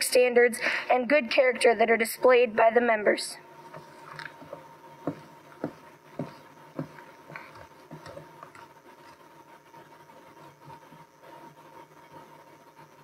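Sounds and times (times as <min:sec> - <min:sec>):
faint steady hum: 0:00.0 - 0:13.0
footsteps on wooden floor: 0:03.8 - 0:08.6.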